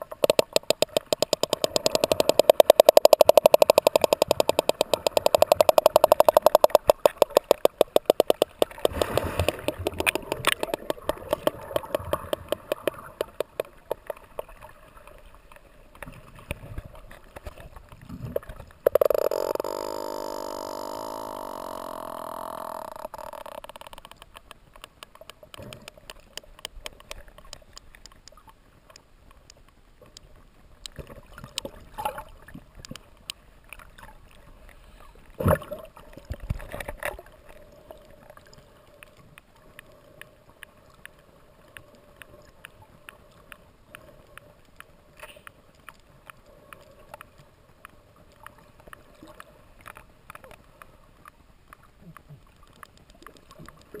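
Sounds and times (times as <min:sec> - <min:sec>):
whale echolocation clicks: 0:00.0 - 0:34.8, 0:35.5 - 0:54.0.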